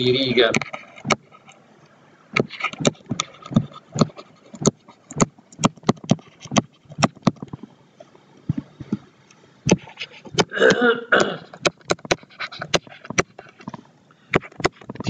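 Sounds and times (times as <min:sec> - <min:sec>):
stylus tapping on tablet: 0:00.5 - 0:01.2, 0:02.4 - 0:07.7, 0:11.6 - 0:15.0.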